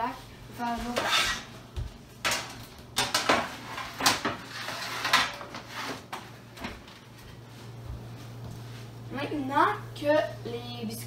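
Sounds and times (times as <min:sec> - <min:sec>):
baking sheets clattering: 0:02.2 - 0:06.9.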